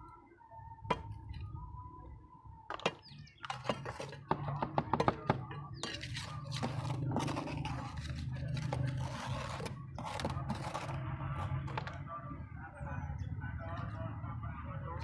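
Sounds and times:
trowel scraping wet cement: 5.7s - 11.9s.

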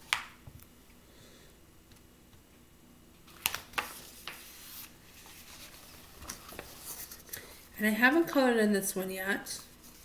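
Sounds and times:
paper pages rustling: 3.2s - 7.6s
paper page flicking: 3.3s - 4.9s.

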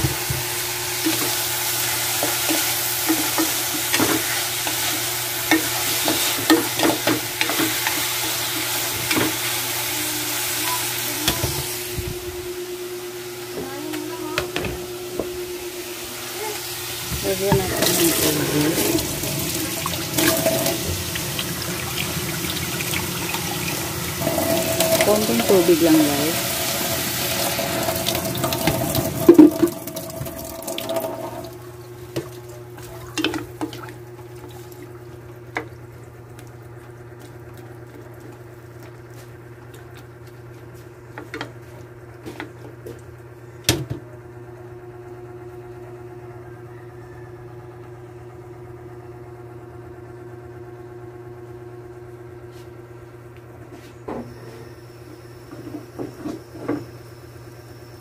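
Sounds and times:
steady low hum: 0.6s - 42.4s.

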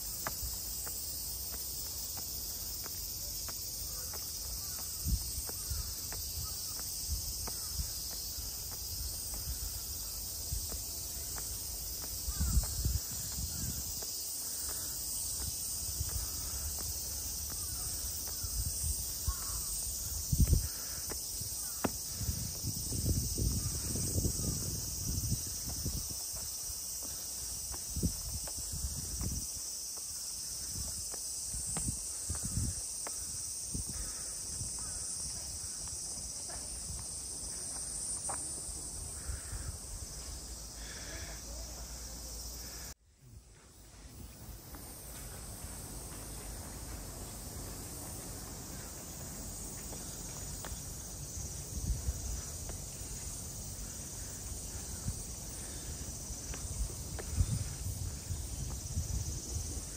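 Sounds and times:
footsteps thumping: 0.0s - 33.3s
cicadas shrilling: 0.0s - 59.9s.

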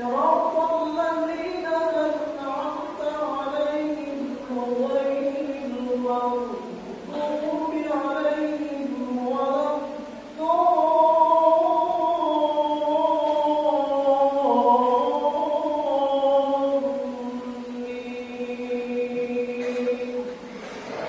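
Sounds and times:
man chanting recitation: 0.0s - 21.0s.

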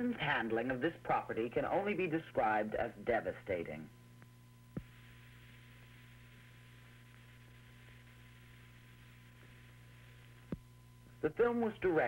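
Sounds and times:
low hum with faint hiss: 0.0s - 12.0s.

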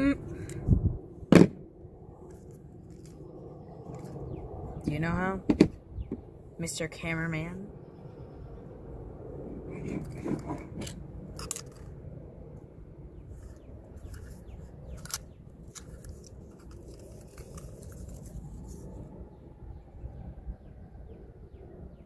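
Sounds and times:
low steady rumble: 0.0s - 22.0s
small clicks and scrapes: 2.2s - 4.2s, 9.7s - 12.0s, 13.3s - 19.0s.

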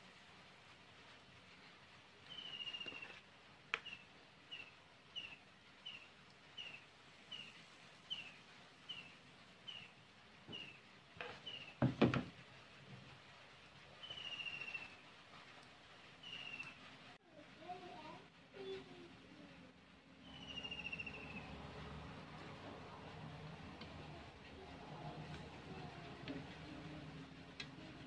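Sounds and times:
small bird chirping: 2.2s - 3.2s, 3.8s - 11.8s, 14.0s - 15.0s, 16.2s - 16.9s, 20.2s - 21.6s.

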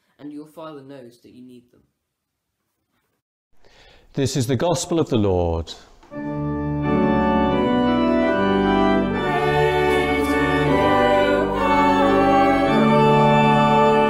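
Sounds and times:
church organ chords: 6.1s - 14.0s.

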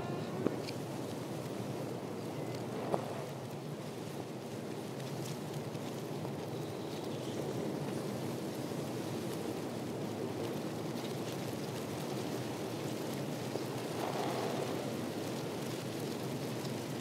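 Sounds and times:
rushing outdoor ambience: 7.5s - 17.0s.

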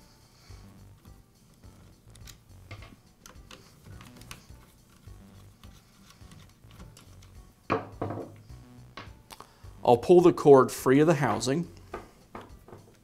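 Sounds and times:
screwdriver clicking on screws: 3.2s - 7.4s.

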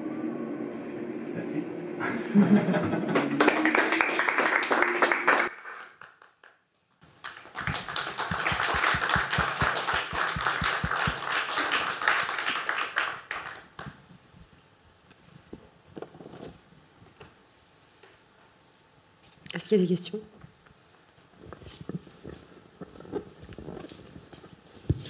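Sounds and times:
audience applause: 2.6s - 14.0s.

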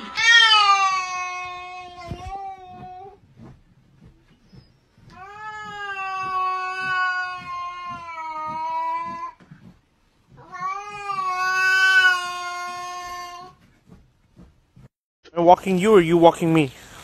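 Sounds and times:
cat yowling: 5.2s - 9.4s.

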